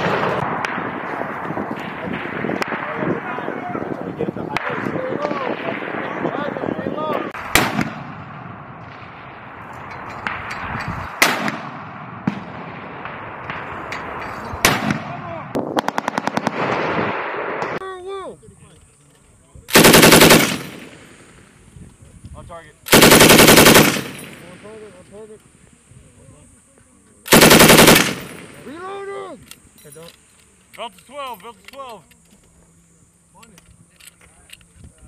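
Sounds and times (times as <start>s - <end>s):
echoing rumble of gunfire: 0.0s - 3.6s, 4.5s - 6.6s, 7.3s - 17.8s, 19.7s - 21.5s, 22.9s - 24.6s, 27.3s - 28.7s
single rifle shots: 7.4s - 17.8s, 19.7s - 21.5s, 22.9s - 24.7s, 27.3s - 28.8s
automatic gunfire burst: 15.8s - 17.0s, 19.7s - 21.0s, 22.9s - 24.4s, 27.3s - 28.7s
loud machine-gun bursts: 15.8s - 17.2s, 19.7s - 21.1s, 22.9s - 24.4s, 27.3s - 28.7s.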